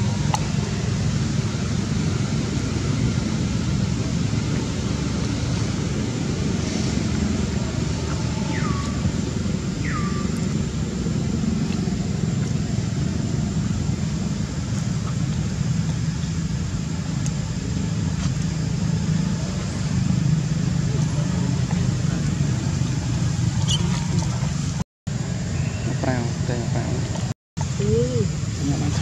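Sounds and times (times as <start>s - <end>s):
low outdoor rumble: 0.0s - 29.0s
short high falling calls: 9.8s - 10.6s.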